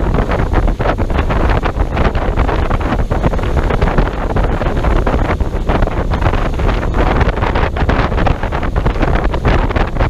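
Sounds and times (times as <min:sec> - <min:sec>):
strong wind buffeting microphone: 0:00.0 - 0:10.0.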